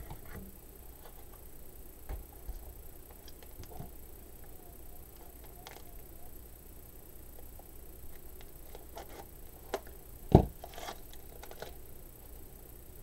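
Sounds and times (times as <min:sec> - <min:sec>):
dull thump: 0:10.3 - 0:10.6.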